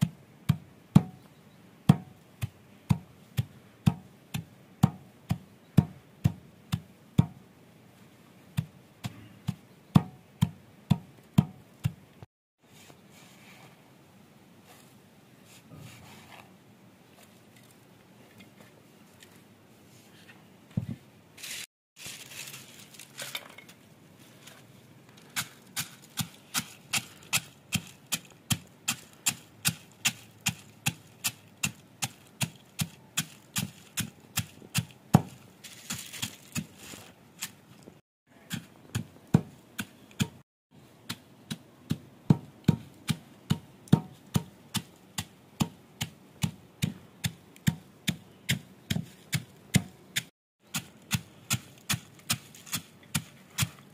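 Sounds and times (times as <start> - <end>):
stone pestle pounding in mortar: 0.0 - 1.2, 1.9 - 7.4, 8.6 - 12.0, 32.4 - 35.4, 38.4 - 40.4, 41.1 - 53.7.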